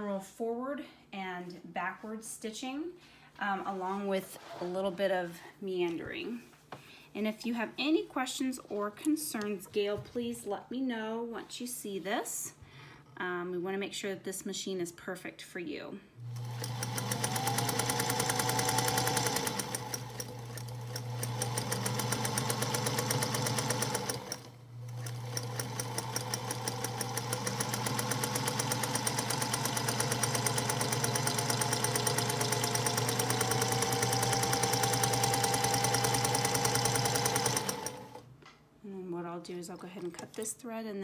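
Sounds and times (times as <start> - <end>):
sewing machine motor whine: 16.2 - 38.2
sewing needle clatter: 16.2 - 38.2.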